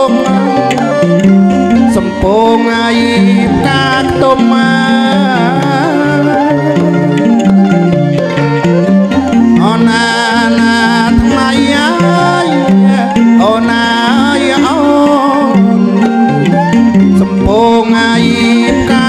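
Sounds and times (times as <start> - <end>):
bowed fiddles melody: 0.0 - 19.0
hand drum: 0.0 - 19.0
wooden xylophone: 0.0 - 19.0.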